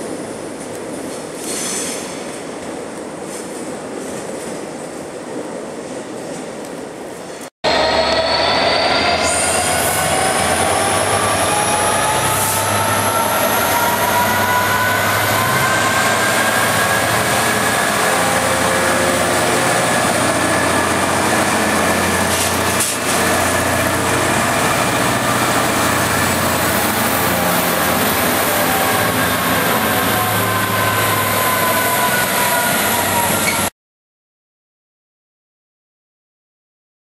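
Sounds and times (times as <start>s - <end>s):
diesel locomotive engine drone: 6.2s - 33.7s
rising locomotive whine: 6.3s - 33.7s.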